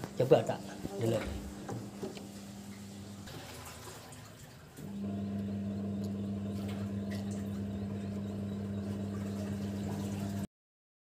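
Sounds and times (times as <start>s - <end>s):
washing machine motor hum: 0.0s - 10.5s
water churning: 2.2s - 10.5s.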